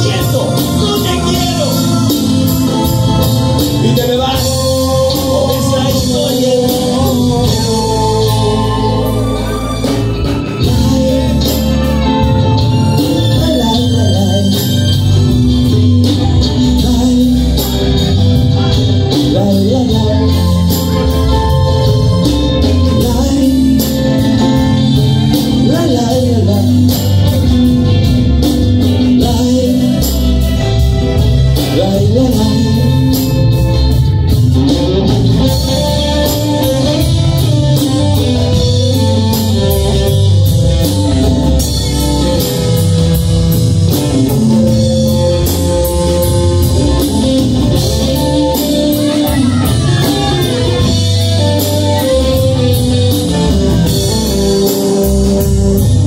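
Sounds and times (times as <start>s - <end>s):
acoustic and electric guitars: 0.0s - 56.0s
congas: 0.0s - 56.0s
drum kit: 0.0s - 56.0s
electric bass: 0.0s - 56.0s
person singing: 0.0s - 56.0s.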